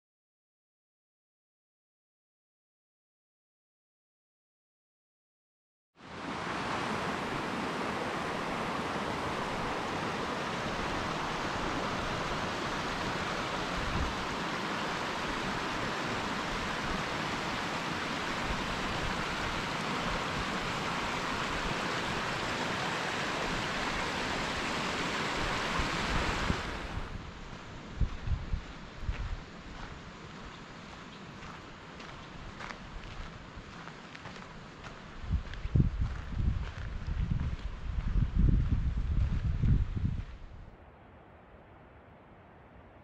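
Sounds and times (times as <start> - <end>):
stream rushing over rocks: 6.0 - 27.7.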